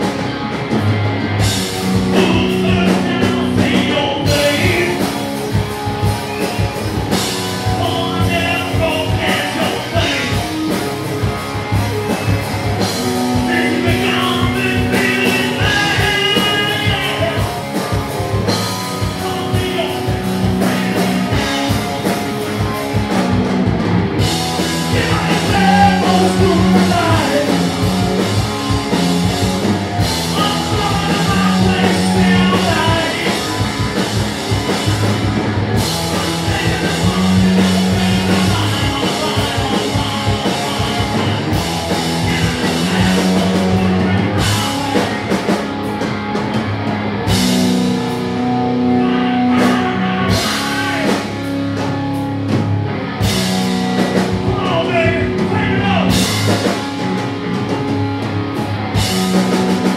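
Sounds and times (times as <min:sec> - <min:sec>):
bass guitar: 0:00.0 - 0:59.9
drum kit: 0:00.0 - 0:59.9
electric guitar: 0:00.0 - 0:59.9
male singer: 0:02.0 - 0:05.2, 0:07.6 - 0:10.4, 0:13.4 - 0:17.6, 0:19.0 - 0:21.4, 0:24.7 - 0:27.7, 0:30.2 - 0:33.6, 0:36.0 - 0:41.4, 0:42.0 - 0:44.9, 0:48.8 - 0:51.4, 0:54.5 - 0:56.3.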